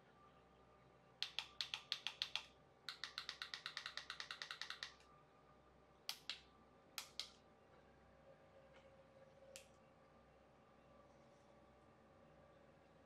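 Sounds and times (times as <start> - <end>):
touchscreen keyboard clicks: 1.2 - 5.0, 6.1 - 6.4, 7.0 - 7.4.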